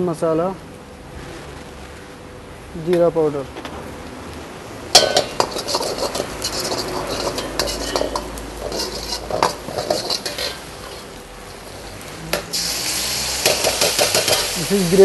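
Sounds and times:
frying sizzle: 0:04.6 - 0:15.0
ladle clanking and scraping in wok: 0:04.9 - 0:15.0.

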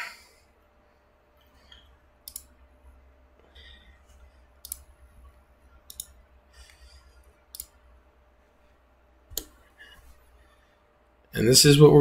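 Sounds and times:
low steady hum: 0:00.0 - 0:12.0
computer mouse clicks: 0:01.7 - 0:02.6, 0:04.1 - 0:04.9, 0:05.8 - 0:07.8.

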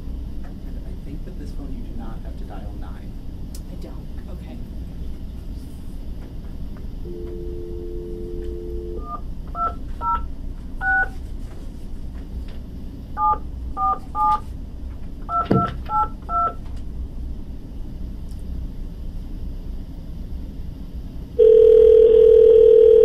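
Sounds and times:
telephone dial tone: 0:07.1 - 0:09.7, 0:21.4 - 0:23.0.

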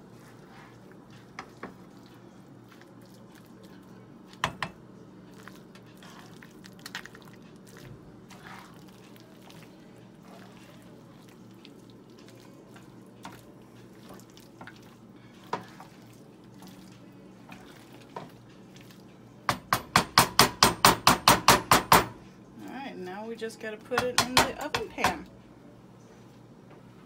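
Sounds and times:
utensil stirring pasta in skillet: 0:00.0 - 0:20.6
utensil knocking against pan: 0:19.5 - 0:22.2, 0:24.0 - 0:25.3
low steady hum: 0:22.1 - 0:27.0.

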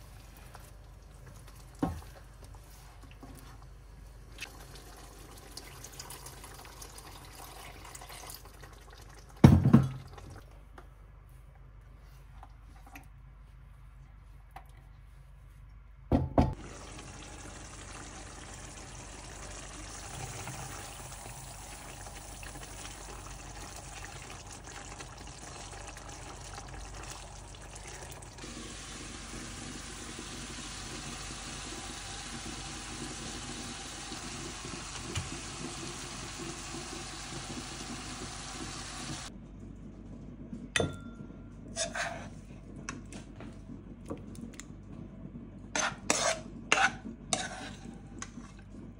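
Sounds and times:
curry simmering in pan: 0:16.6 - 0:39.3.

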